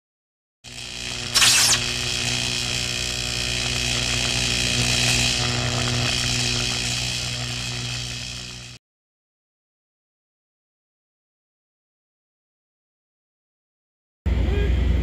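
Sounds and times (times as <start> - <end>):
electrical buzz with low hum: 0.6 - 8.8
electric arc zap: 0.7 - 8.8.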